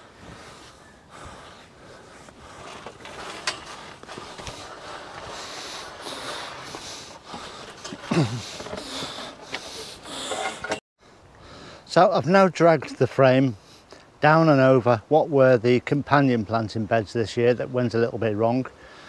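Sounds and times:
man breathing hard: 0.0 - 3.0, 3.7 - 10.8, 11.4 - 11.9, 18.8 - 19.0
metal frame scraping over ground: 2.1 - 10.8.

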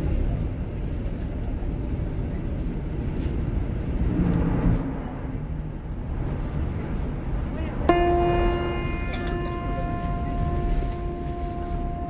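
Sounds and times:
bus road and engine rumble: 0.0 - 12.0.

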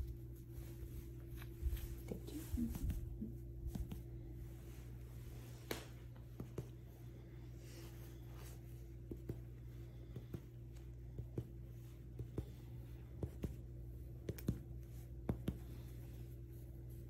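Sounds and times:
steady low hum: 0.0 - 17.0
finger tapping on chest: 3.6 - 4.3, 5.7 - 6.9, 9.0 - 15.9.

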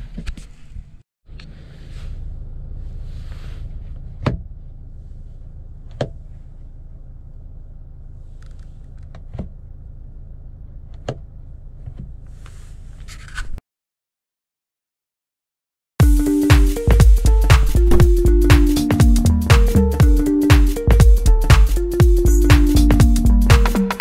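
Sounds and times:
low cabin hum: 16.0 - 24.0.

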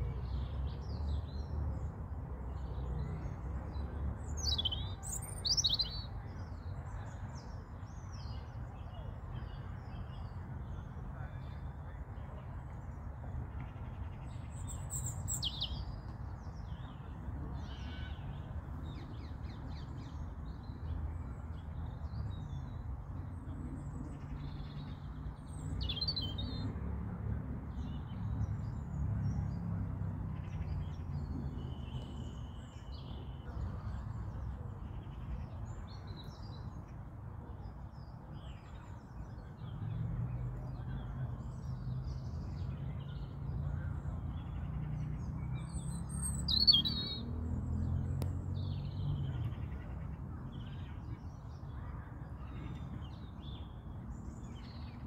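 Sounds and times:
robin singing: 4.2 - 6.2, 14.3 - 16.9, 24.4 - 26.7, 45.2 - 49.8.

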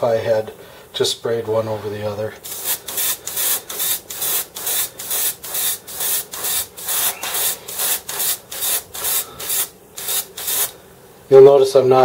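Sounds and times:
airbrush spraying hiss: 2.4 - 10.8.

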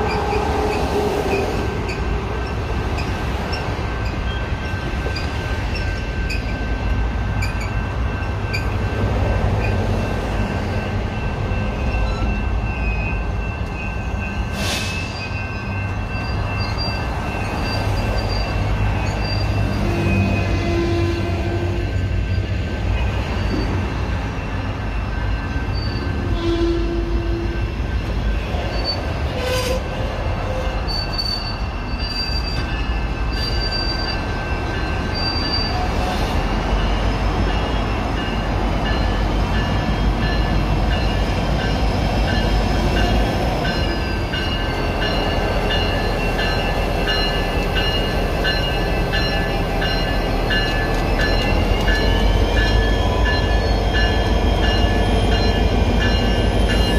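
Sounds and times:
steel wheels squealing: 0.0 - 8.8, 11.5 - 27.6, 28.6 - 56.9
train rumbling on rails: 0.0 - 56.9.

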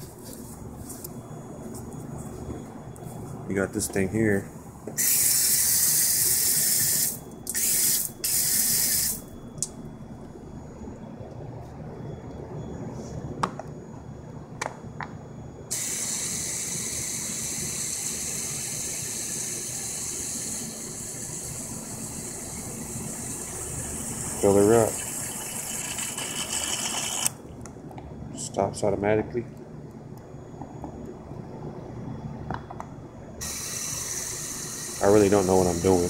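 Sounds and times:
hiss of water flowing: 15.7 - 22.5, 33.4 - 36.0.

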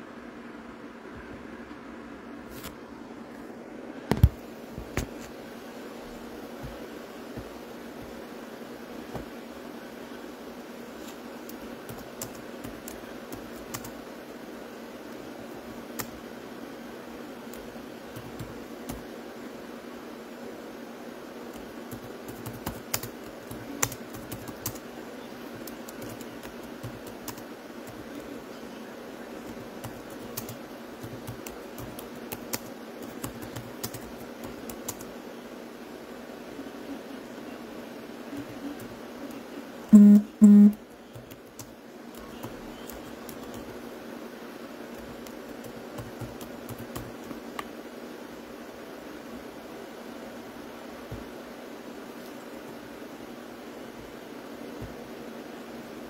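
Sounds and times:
steady low hiss: 0.0 - 56.0
faint clicks and taps: 4.1 - 5.4, 9.1 - 9.3, 44.9 - 47.8
typing on a keyboard: 11.4 - 14.0, 17.5 - 19.1, 21.5 - 24.8, 25.6 - 28.3, 29.4 - 35.1, 39.9 - 43.8, 44.9 - 47.7
short beeps: 40.0 - 40.8.

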